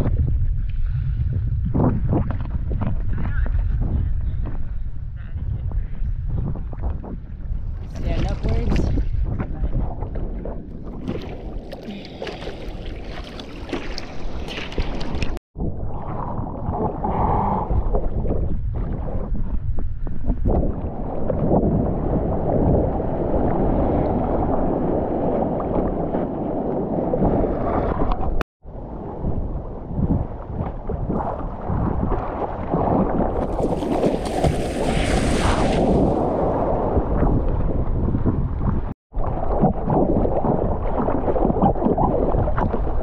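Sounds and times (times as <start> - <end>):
wind buffeting microphone: 0.0 - 11.7, 13.6 - 43.0
ocean water sloshing and splashing: 6.8 - 17.1, 17.8 - 43.0.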